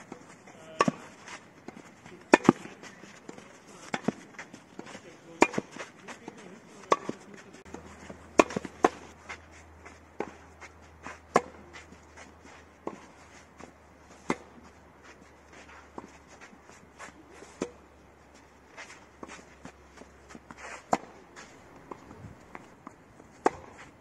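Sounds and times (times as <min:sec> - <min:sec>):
footsteps on clay court: 0:00.0 - 0:24.0
tennis ball hit by racket: 0:00.1 - 0:09.2, 0:11.2 - 0:11.8, 0:12.8 - 0:13.2, 0:14.1 - 0:14.6, 0:19.2 - 0:22.7, 0:23.3 - 0:23.9.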